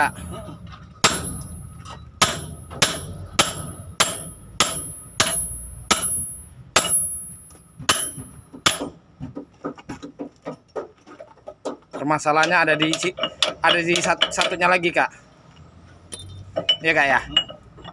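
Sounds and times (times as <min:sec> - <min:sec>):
hammer striking metal: 0:01.0 - 0:09.0, 0:12.4 - 0:14.8.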